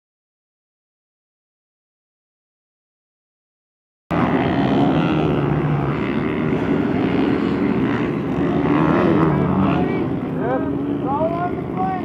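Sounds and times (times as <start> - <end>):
two-stroke dirt bike engine buzzing: 4.1 - 12.0.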